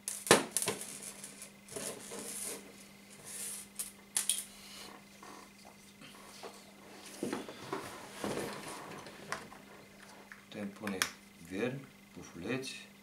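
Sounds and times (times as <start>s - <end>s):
fishing line rustling on table: 0.6s - 4.6s.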